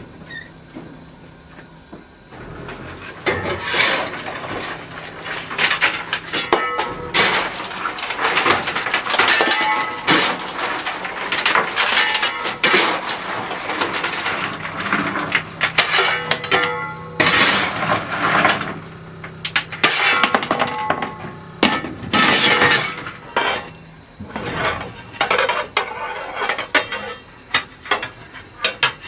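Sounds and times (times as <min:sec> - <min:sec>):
shovel scraping steel and coal: 0:02.4 - 0:29.0
metallic clanks and ring: 0:15.8 - 0:17.8.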